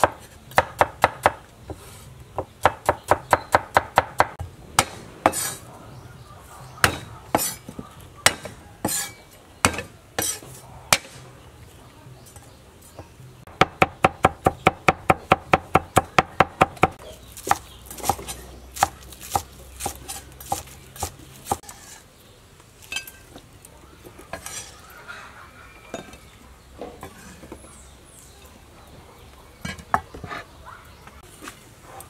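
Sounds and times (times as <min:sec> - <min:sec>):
knife chopping on wooden board: 0:13.6 - 0:21.6.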